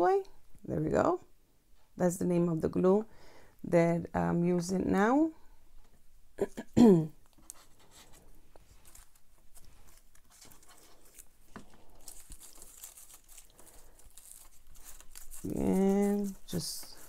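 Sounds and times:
paper rustling and tapping: 8.8 - 17.0.

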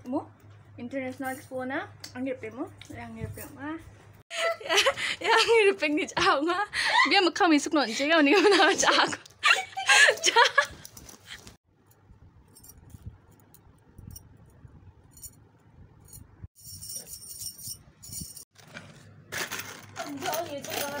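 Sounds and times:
bangles clinking and jingling: 11.9 - 15.4, 16.0 - 18.5.

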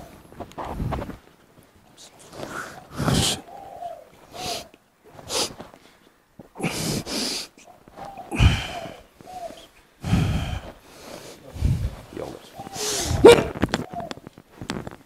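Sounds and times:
person exhaling and snorting: 2.3 - 3.5, 4.3 - 5.7, 6.6 - 7.6, 8.2 - 12.0, 12.7 - 13.6
person groaning: 8.3 - 8.9.

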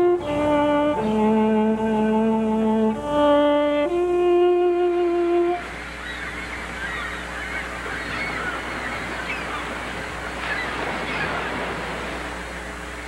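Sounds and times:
steady rushing noise: 0.0 - 13.0
flock of birds calling: 5.6 - 12.9.

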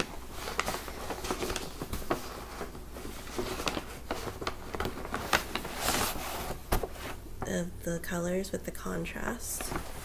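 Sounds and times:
bag rustling and crinkling: 0.0 - 7.2.

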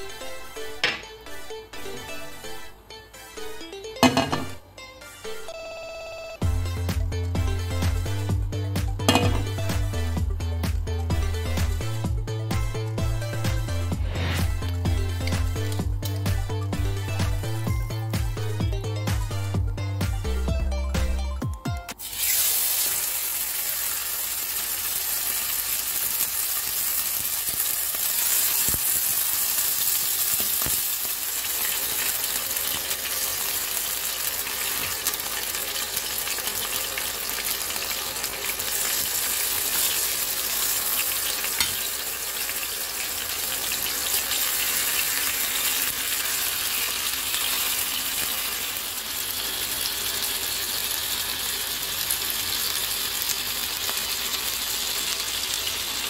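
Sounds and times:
chicken sizzling in frying pan: 21.9 - 56.0.

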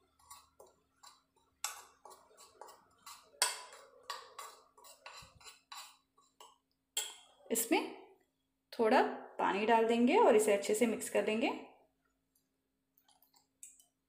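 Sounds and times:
spoon scraping and clinking bowl: 0.0 - 7.4.

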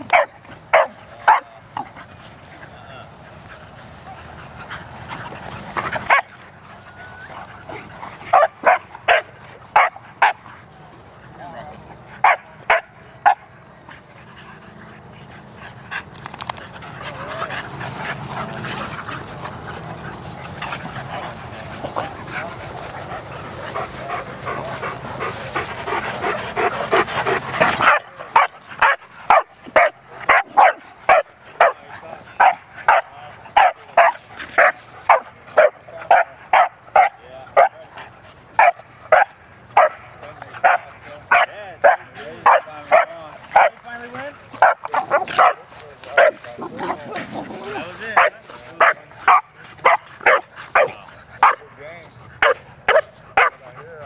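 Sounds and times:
dogs barking: 0.0 - 2.0, 4.2 - 10.6, 12.1 - 51.8, 52.4 - 54.0
dogs yipping playfully: 4.1 - 10.5, 25.6 - 31.8, 46.2 - 51.6.

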